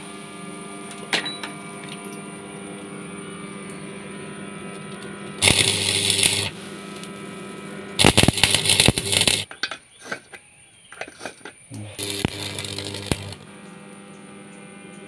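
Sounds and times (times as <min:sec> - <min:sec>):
steady electrical hum: 0:00.0 - 0:10.0, 0:11.2 - 0:15.0
welding arc crackling: 0:04.6 - 0:09.6, 0:11.7 - 0:14.8.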